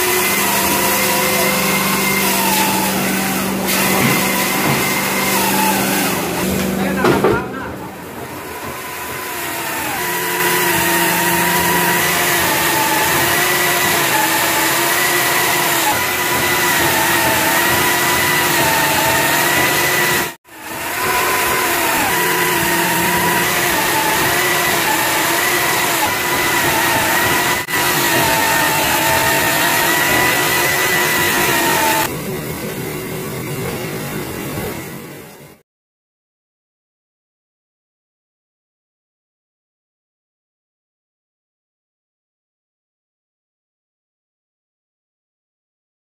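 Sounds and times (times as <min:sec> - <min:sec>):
electric chainsaw cutting log: 0:00.0 - 0:07.4, 0:08.0 - 0:32.1.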